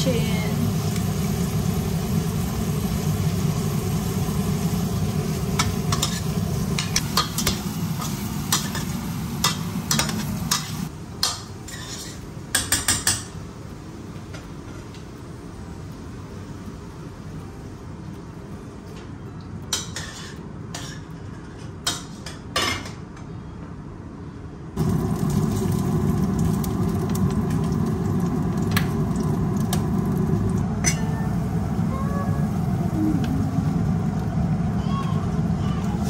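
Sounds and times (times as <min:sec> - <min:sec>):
utensils clinking on cookware: 0:05.6 - 0:13.4, 0:19.7 - 0:23.0, 0:30.8 - 0:31.2.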